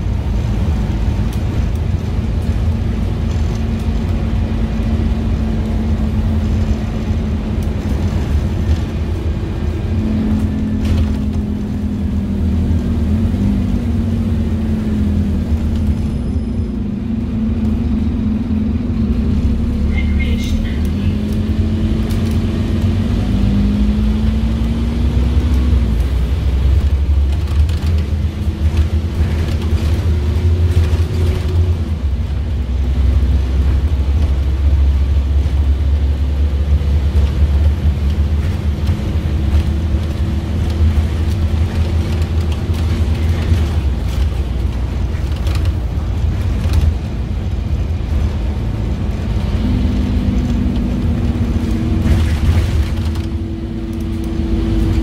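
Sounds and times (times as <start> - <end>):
bus diesel engine rumbling: 0.0 - 55.0.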